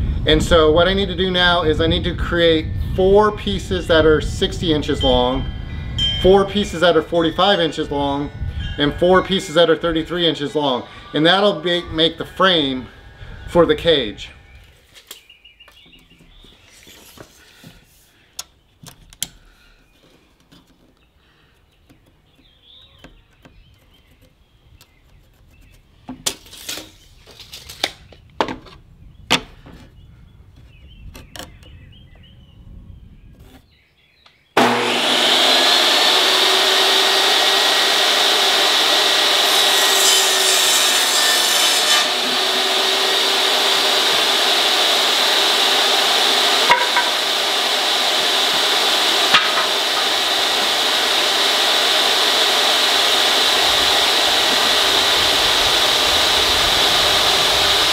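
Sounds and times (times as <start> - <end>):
table saw running: 6.1 - 14.6, 34.6 - 57.9.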